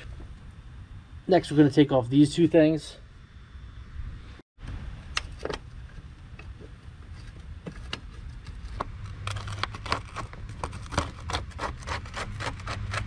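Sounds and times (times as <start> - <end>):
steady low hum: 0.0 - 9.4.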